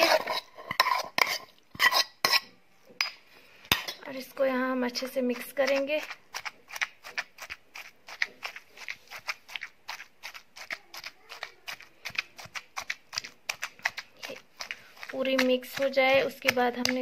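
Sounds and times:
pestle pounding in stone mortar: 0:05.3 - 0:17.0.

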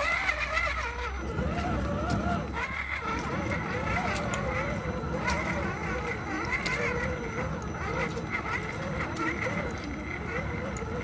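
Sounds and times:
electric motor and gears whining: 0:00.0 - 0:11.0.

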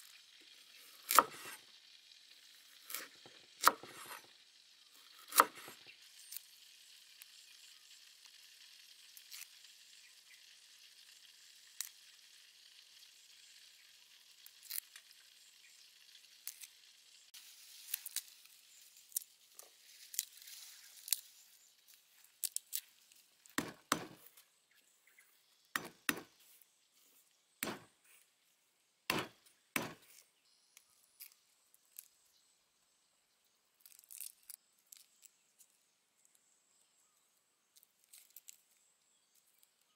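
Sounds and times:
leaves rustling and tearing: 0:09.0 - 0:09.7, 0:14.2 - 0:15.3, 0:16.0 - 0:16.8, 0:17.4 - 0:24.8, 0:31.0 - 0:32.3, 0:33.7 - 0:36.4, 0:37.8 - 0:39.9.

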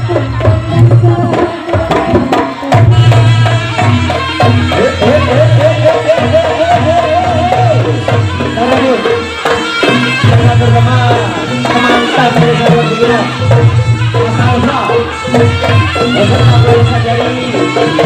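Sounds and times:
hand drums beating: 0:00.0 - 0:18.0
trilling melody: 0:00.0 - 0:18.0.

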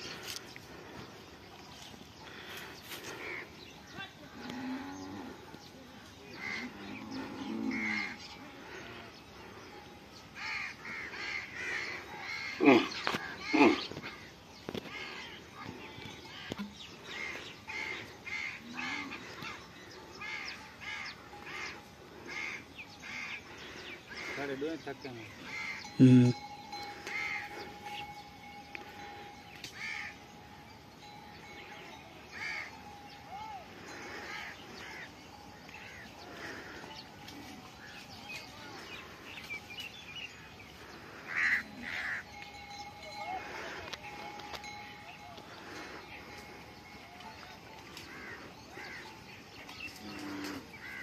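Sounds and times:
birds chirping and calling: 0:00.0 - 0:51.0
outdoor background noise: 0:00.0 - 0:51.0
crows cawing: 0:02.2 - 0:03.6, 0:06.3 - 0:07.0, 0:07.7 - 0:09.1, 0:10.4 - 0:30.2, 0:32.3 - 0:33.1, 0:33.7 - 0:37.2, 0:40.8 - 0:42.7, 0:45.4 - 0:46.9, 0:48.0 - 0:51.0.

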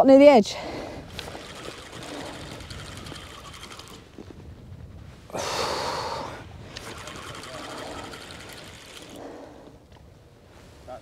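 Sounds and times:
low wind rumble: 0:00.0 - 0:11.0
fishing reel whirring: 0:01.0 - 0:04.2, 0:06.8 - 0:09.3.

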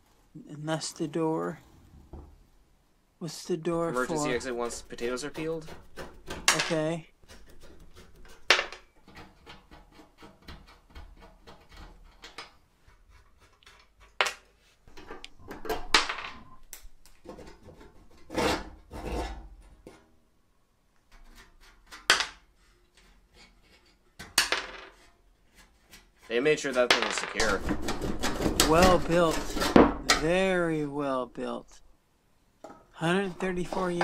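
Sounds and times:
light metal scraping: 0:03.9 - 0:15.5, 0:33.0 - 0:34.0.

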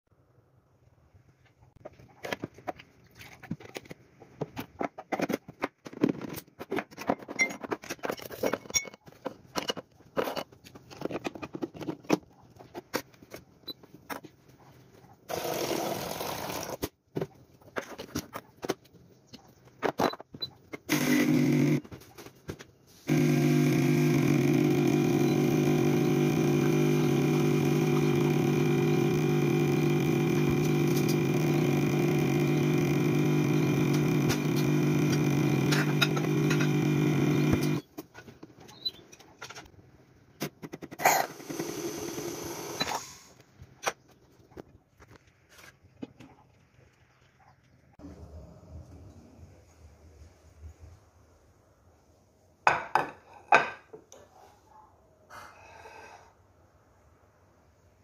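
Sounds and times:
portafilter clicks and scraping: 0:20.8 - 0:21.8, 0:23.1 - 0:38.0, 0:40.4 - 0:43.1
espresso machine pump humming: 0:20.9 - 0:21.8, 0:23.1 - 0:37.8, 0:41.3 - 0:42.9.

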